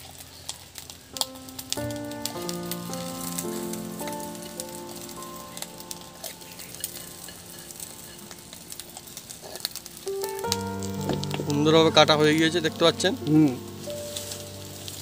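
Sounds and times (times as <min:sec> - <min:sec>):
egg sizzling in oil: 0:00.0 - 0:15.0
background music: 0:01.2 - 0:15.0.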